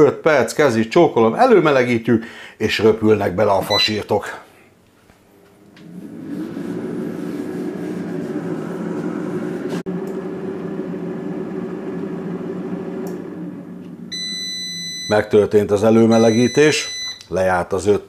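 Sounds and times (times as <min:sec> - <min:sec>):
air fryer fan running: 0:05.6 - 0:15.1.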